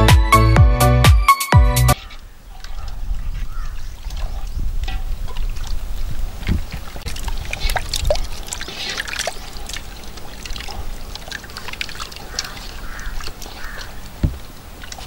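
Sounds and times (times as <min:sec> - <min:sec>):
ladle stirring in a pot: 0:02.0 - 0:14.2.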